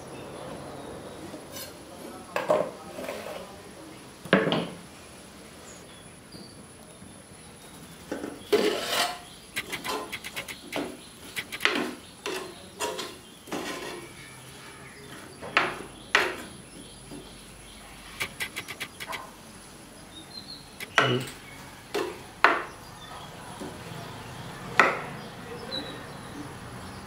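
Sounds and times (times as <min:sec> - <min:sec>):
ladle scraping clay pot: 0:08.5 - 0:14.0.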